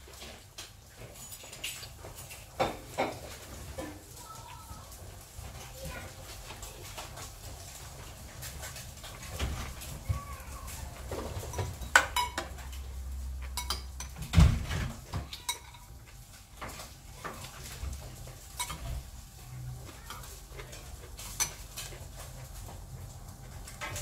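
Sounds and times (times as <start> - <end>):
cutlery scraping a glass bowl: 13.5 - 14.2, 18.5 - 18.8.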